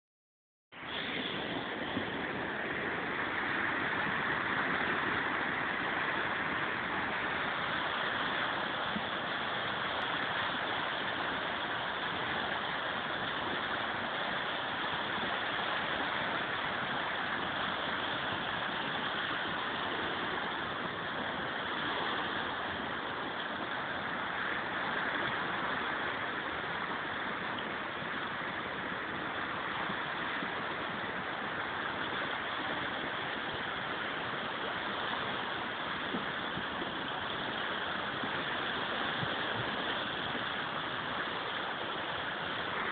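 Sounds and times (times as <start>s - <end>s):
river rushing over whitewater: 0.8s - 42.9s.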